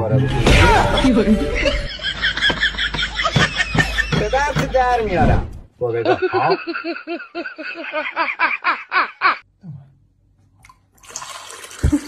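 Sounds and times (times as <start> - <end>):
person laughing: 1.5 - 5.0, 6.0 - 9.4.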